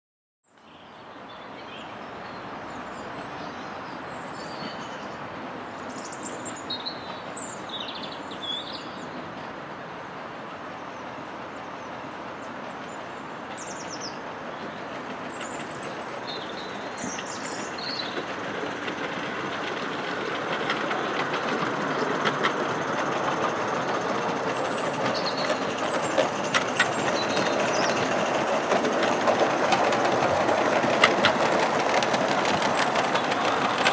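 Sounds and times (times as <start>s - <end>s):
steady steam hiss: 2.0s - 33.9s
wheels clicking on track: 2.3s - 33.9s
small birds chirping: 10.8s - 33.9s.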